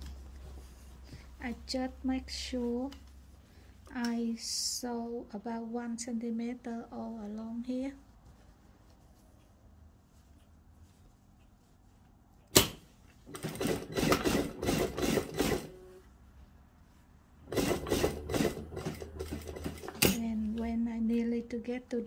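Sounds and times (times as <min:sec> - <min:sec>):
sharp click: 0:12.5 - 0:12.8
sewing machine stitching: 0:13.3 - 0:16.0, 0:17.5 - 0:20.3.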